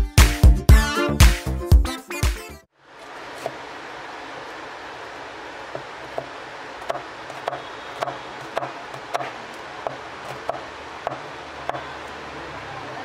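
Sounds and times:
knife chopping on cutting board: 5.7s - 12.0s.

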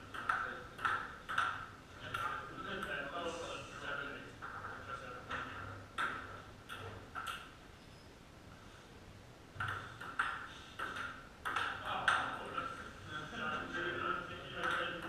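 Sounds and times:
table tennis ball clicks: 0.1s - 2.4s, 5.3s - 7.5s, 9.6s - 12.4s, 14.6s - 15.0s.

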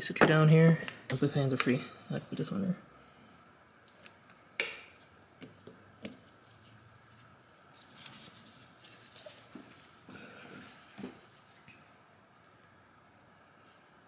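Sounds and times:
soft rustling: 6.4s - 14.0s.

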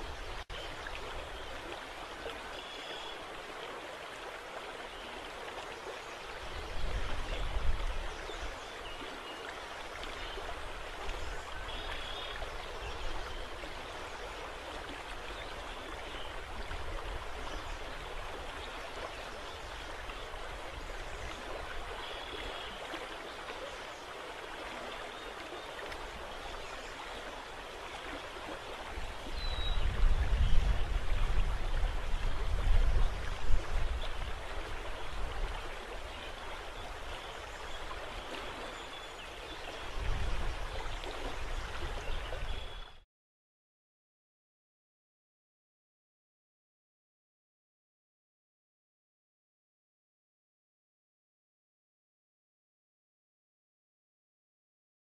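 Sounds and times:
rippling water: 0.0s - 43.0s
wind gusts hitting microphone: 29.3s - 34.5s.

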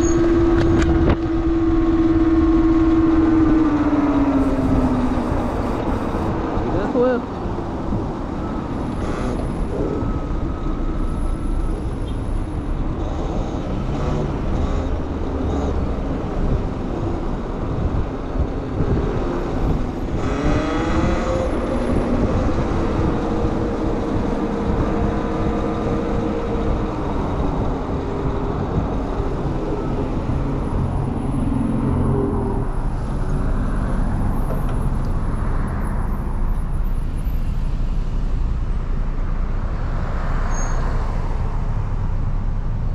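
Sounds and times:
wind rush and road noise: 0.0s - 42.9s
motor vehicles passing: 11.6s - 42.9s.

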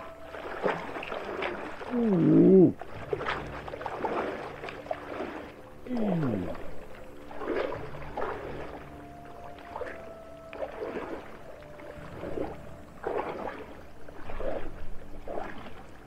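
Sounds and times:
water sloshing around legs: 0.0s - 16.0s
man crying out from cold: 1.9s - 2.8s, 5.9s - 6.6s.

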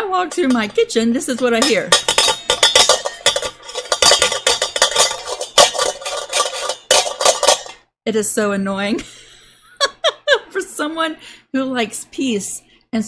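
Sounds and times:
metal bowls rattling and clanking: 0.1s - 7.8s.

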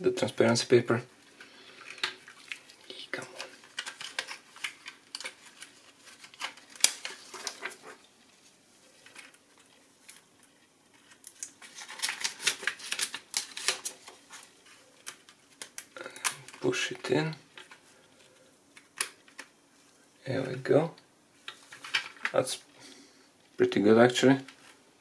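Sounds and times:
clicking and crinkling plastic sheet: 1.3s - 8.1s, 8.9s - 19.6s, 21.4s - 22.5s.

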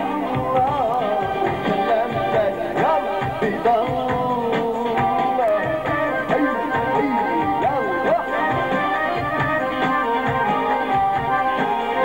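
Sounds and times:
man singing into microphone: 0.0s - 9.4s
electric guitar: 0.0s - 12.0s
keyboard: 0.0s - 12.0s
steady beat: 0.0s - 12.0s.

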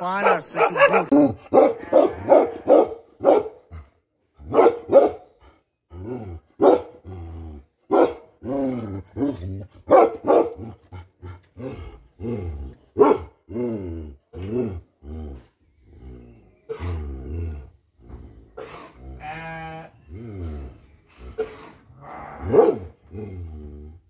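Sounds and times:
dog barking deeply: 0.0s - 3.7s, 4.4s - 5.3s, 6.0s - 7.1s, 7.9s - 10.8s, 12.9s - 13.4s, 21.4s - 23.2s
dog growling: 1.1s - 2.9s, 5.9s - 7.8s, 11.0s - 24.0s.

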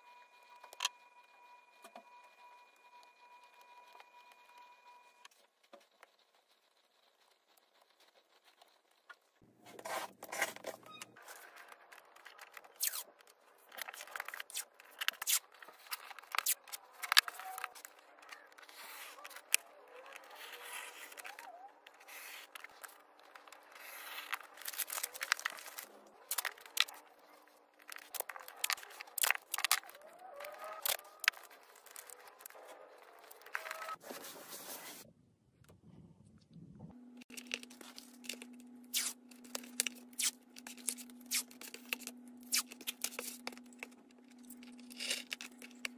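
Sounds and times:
masking tape pulled and torn: 11.2s - 18.0s, 37.3s - 45.9s.

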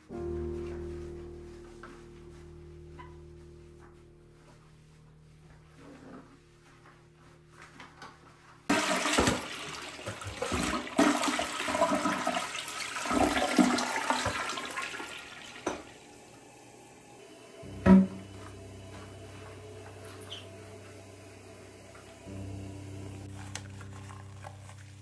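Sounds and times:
toilet flushing: 8.7s - 25.0s.

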